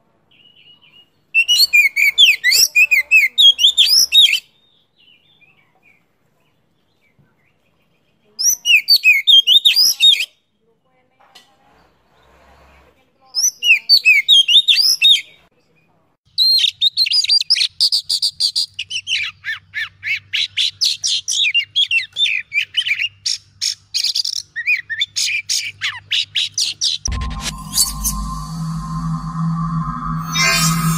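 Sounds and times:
electronic music: 27.1 - 30.9.

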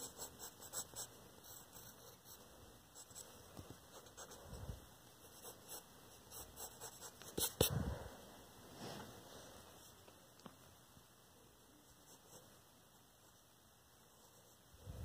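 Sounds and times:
pencil scratching on paper: 0.0 - 2.4, 5.2 - 7.7.

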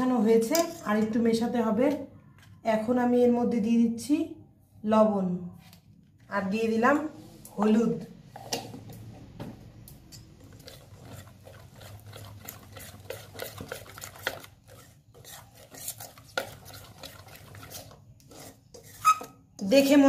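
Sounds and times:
spoon scraping metal bowl: 0.4 - 1.2, 10.0 - 20.0.

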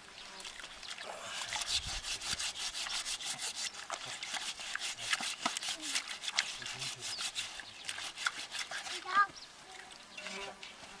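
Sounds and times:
scouring pad scraping skin: 1.4 - 9.2.

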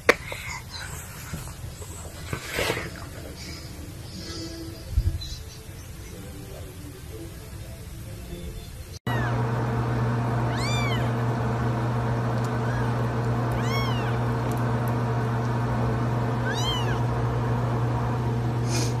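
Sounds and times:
steady low hum: 9.1 - 19.0
kittens mewing: 10.5 - 11.2, 12.6 - 14.3, 16.4 - 17.1.

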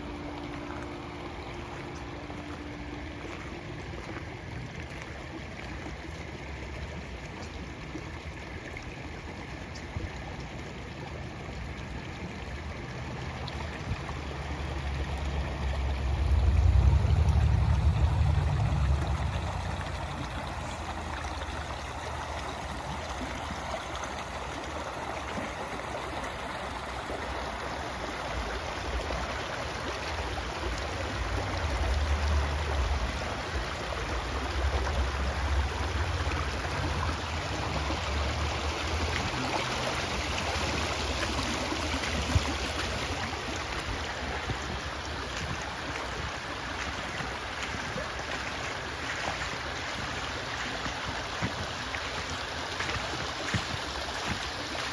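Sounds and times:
water rushing over rocks: 0.0 - 54.9
low rumble: 14.6 - 22.3.

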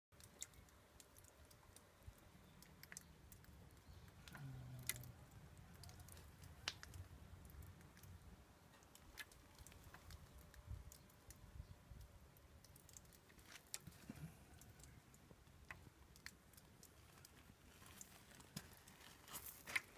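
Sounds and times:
water dripping on leaves: 0.1 - 19.9.

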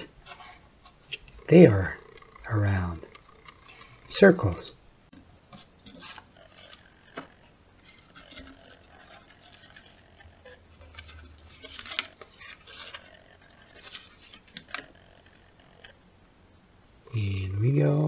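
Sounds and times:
paper plates scraping and tapping: 5.1 - 16.3.

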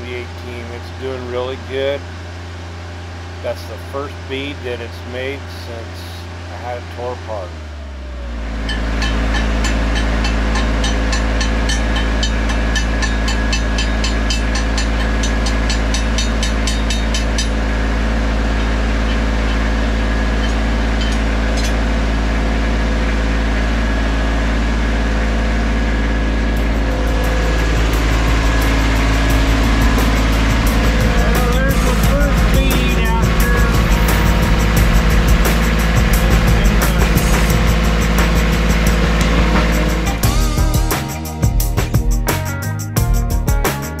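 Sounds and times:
welder engine running: 0.0 - 41.9.

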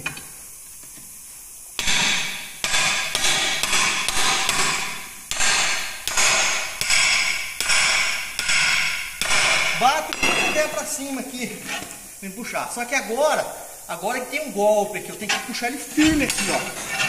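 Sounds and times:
ringing hammer blows: 1.8 - 11.2.

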